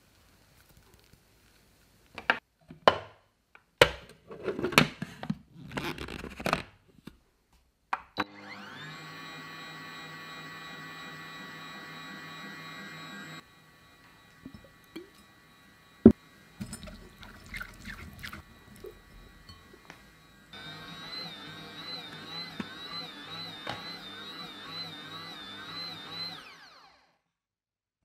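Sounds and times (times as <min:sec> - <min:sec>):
food processor motor running: 0:08.2 - 0:27.2.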